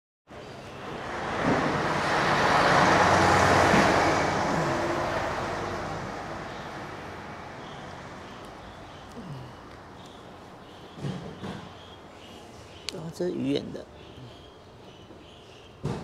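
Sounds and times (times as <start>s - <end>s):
vehicle passing by: 0.5s - 9.6s.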